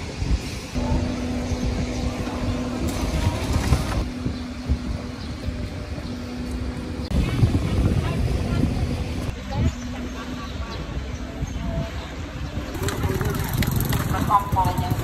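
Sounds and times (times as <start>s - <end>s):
low outdoor rumble: 0.0s - 15.0s
small engine running: 12.8s - 15.0s.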